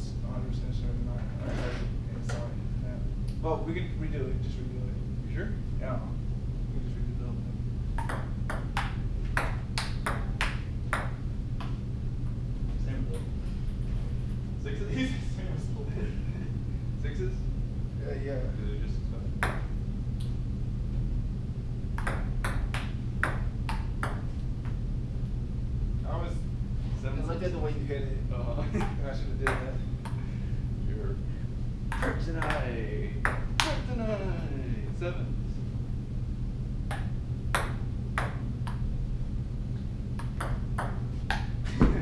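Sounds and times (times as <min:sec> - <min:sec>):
ping pong ball clicking: 0:08.0 - 0:11.7, 0:22.0 - 0:24.2, 0:31.9 - 0:32.6, 0:36.9 - 0:38.9, 0:40.2 - 0:41.5.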